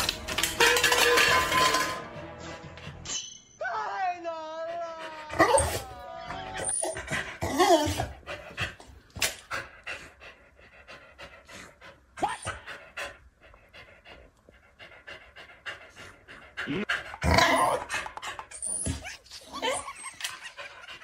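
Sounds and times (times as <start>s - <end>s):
dog panting: 4.6s - 6.0s, 7.0s - 17.2s, 19.8s - 21.0s.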